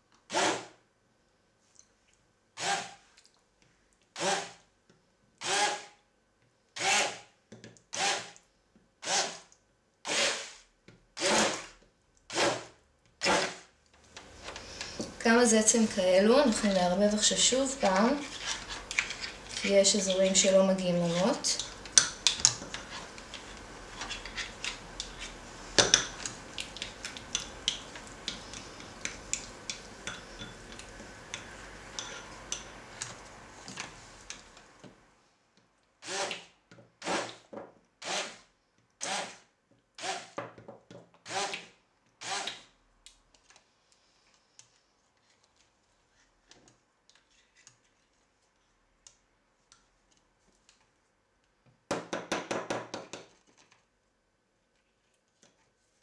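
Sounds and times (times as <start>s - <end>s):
spatula scraping glass bowl: 17.2s - 20.2s.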